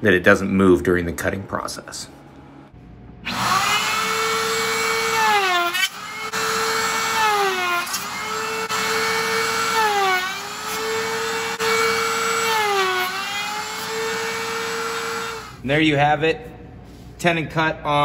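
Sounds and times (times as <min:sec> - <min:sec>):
router whining cutting wood: 0:03.2 - 0:15.6.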